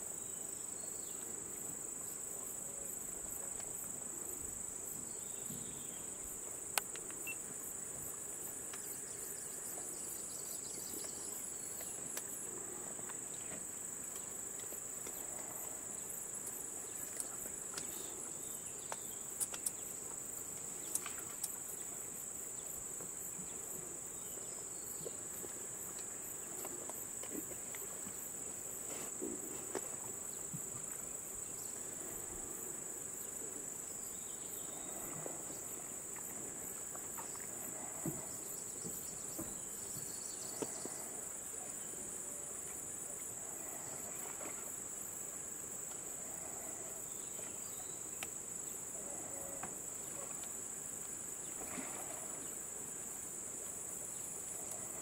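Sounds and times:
faint clicks: 0:18.8 - 0:19.9.

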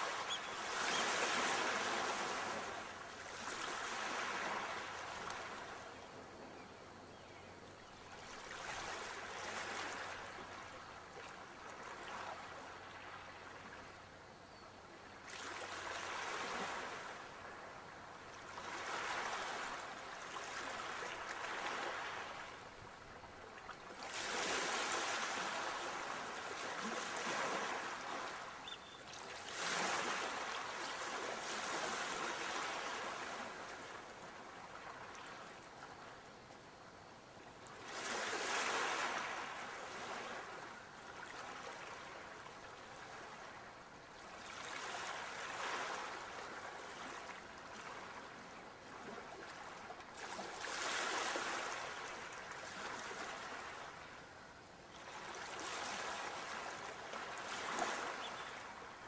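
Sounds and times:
ocean waves washing ashore: 0:00.0 - 0:05.8, 0:15.2 - 0:36.2, 0:37.3 - 0:54.3.

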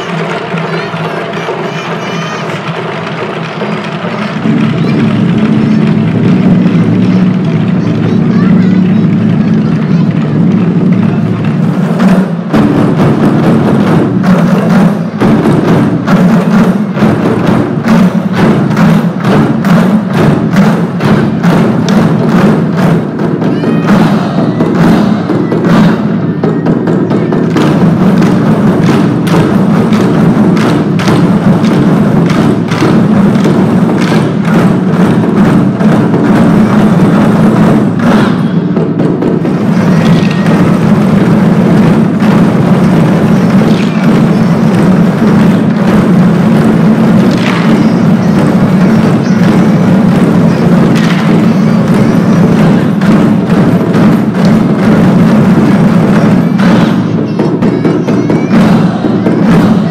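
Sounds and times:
large drum ensemble: 0:00.0 - 0:59.9.

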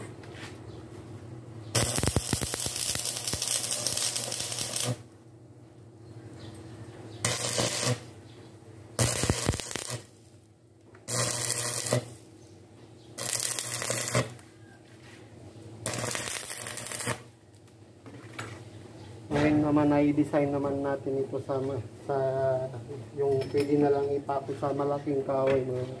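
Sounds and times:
welding arc crackling: 0:01.7 - 0:05.2, 0:07.2 - 0:08.2, 0:09.0 - 0:10.4, 0:11.0 - 0:12.3, 0:13.2 - 0:14.5, 0:15.8 - 0:17.4.

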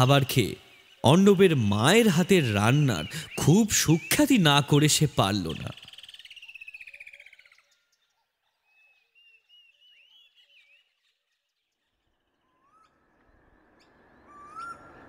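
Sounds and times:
bird chirps: 0:00.0 - 0:15.0
upward-sliding whistled bird calls: 0:12.4 - 0:15.0.

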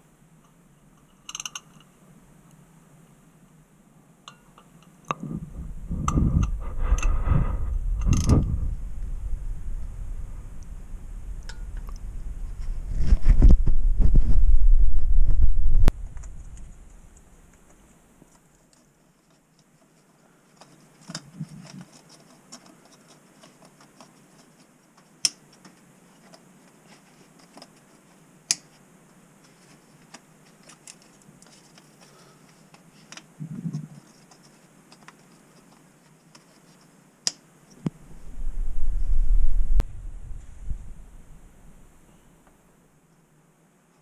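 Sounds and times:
hand tools clicking and tapping: 0:01.0 - 0:01.9
low rumble: 0:05.2 - 0:17.3, 0:37.8 - 0:42.1.

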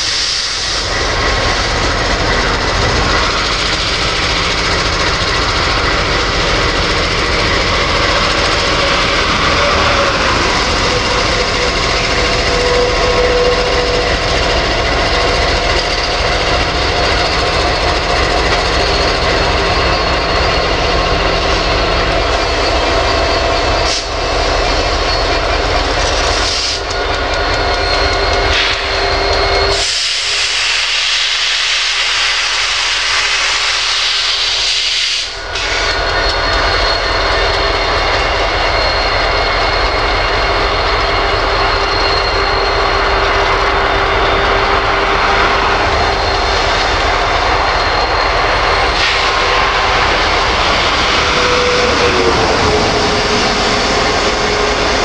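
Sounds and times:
hiss: 0:00.0 - 0:01.1, 0:26.3 - 0:26.8, 0:29.7 - 0:36.0, 0:48.8 - 0:52.0
steady whine: 0:00.0 - 0:29.8, 0:35.3 - 0:55.0
locomotive engines passing: 0:00.0 - 0:30.4, 0:35.5 - 0:55.0
freight cars rumbling on rails: 0:00.0 - 0:55.0
short falling squeal: 0:35.2 - 0:55.0.

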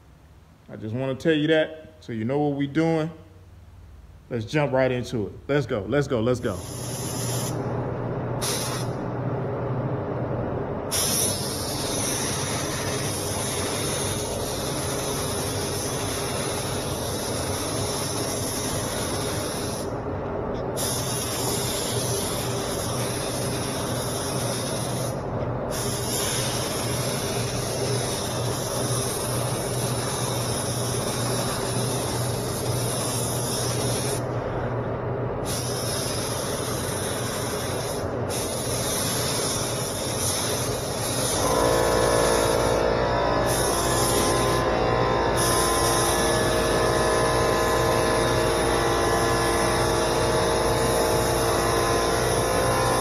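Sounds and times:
steady low hum: 0:00.0 - 0:53.0
spray gun hissing: 0:06.5 - 0:07.6, 0:08.4 - 0:09.0, 0:10.9 - 0:19.9, 0:20.8 - 0:34.3, 0:35.4 - 0:44.7, 0:45.3 - 0:53.0.

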